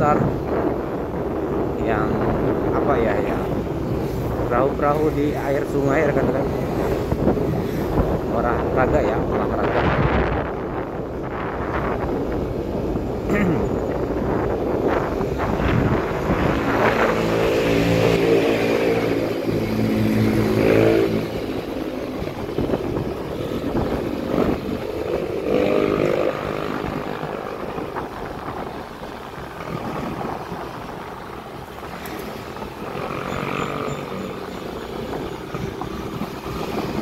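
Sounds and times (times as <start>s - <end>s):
road rumble: 0.0s - 37.0s.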